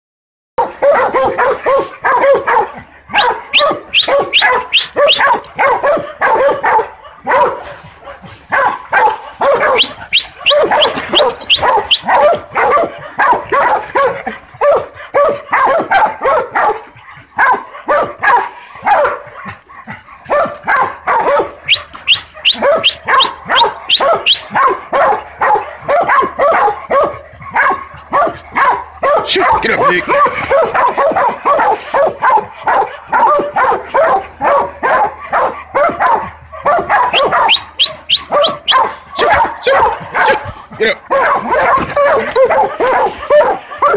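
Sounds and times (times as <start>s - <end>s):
dogs barking rapidly: 0.6s - 43.9s.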